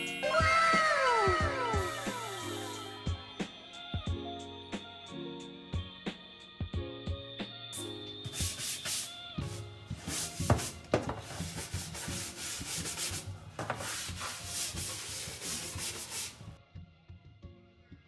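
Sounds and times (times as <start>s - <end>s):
soft background music: 0.0s - 18.0s
brush scrubbing cabinet floor: 8.3s - 16.6s.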